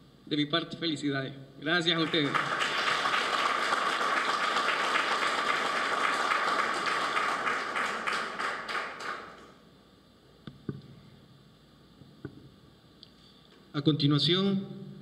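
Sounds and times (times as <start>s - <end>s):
audience applauding: 1.9s - 9.6s.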